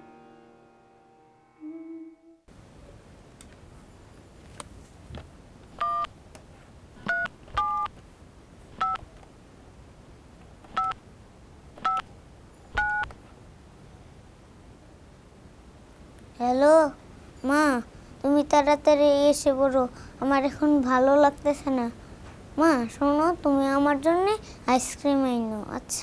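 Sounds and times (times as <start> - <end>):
two-tone keypad beeps: 11.8 - 12.0, 12.8 - 13.1.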